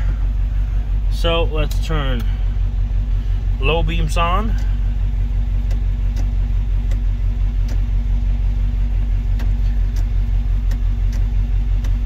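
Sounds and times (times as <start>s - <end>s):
car engine idling: 0.0s - 12.0s
faint clicks: 9.3s - 12.0s.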